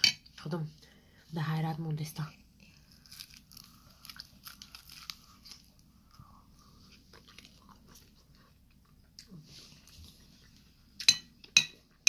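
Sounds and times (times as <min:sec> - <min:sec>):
crunching and chewing crisp pastry: 0:02.6 - 0:11.1.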